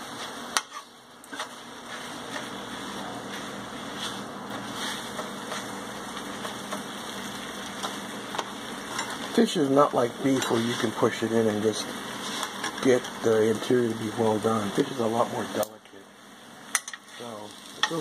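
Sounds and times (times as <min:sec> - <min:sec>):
fish sizzling in a frying pan: 0:00.0 - 0:18.0
metal tongs clicking on pan: 0:16.7 - 0:17.0.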